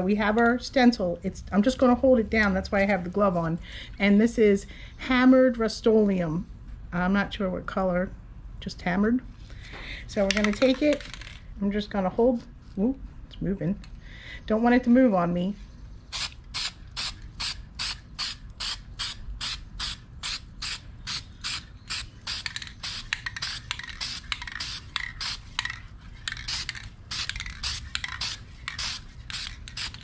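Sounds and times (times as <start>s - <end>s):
spray paint can bursts hissing: 16.1s - 25.6s, 26.4s - 30.0s.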